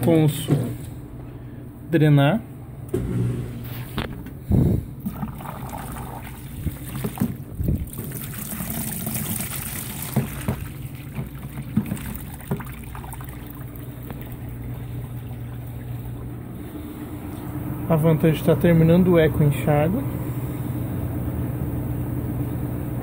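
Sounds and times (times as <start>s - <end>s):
steady low hum: 0.0s - 23.0s
water gushing into plastic basin: 5.0s - 16.9s.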